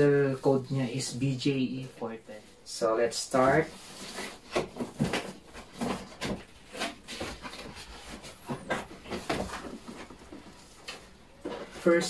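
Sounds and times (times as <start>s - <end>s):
plastic wrap rustling: 0.5s - 12.0s
cardboard flaps scraping: 3.2s - 12.0s.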